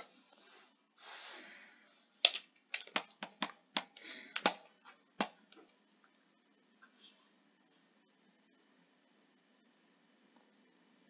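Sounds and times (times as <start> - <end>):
soft hiss: 0.0 - 2.1.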